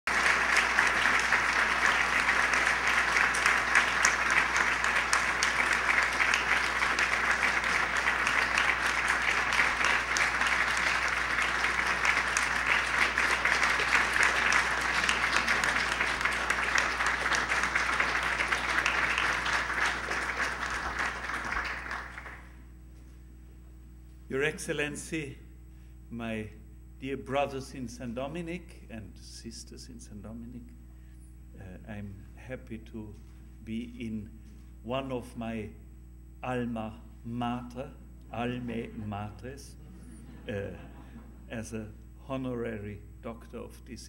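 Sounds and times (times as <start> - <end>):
audience clapping: 0.0 - 22.7.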